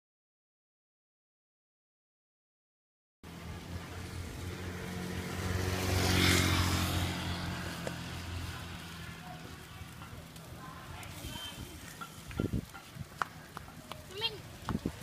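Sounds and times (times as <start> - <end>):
motor vehicle passing: 3.2 - 15.0.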